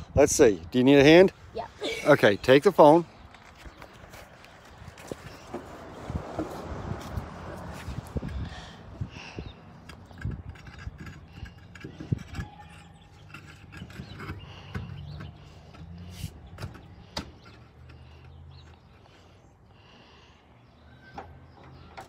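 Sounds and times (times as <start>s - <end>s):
steel wheel knocking and scraping: 7.8s - 18.8s.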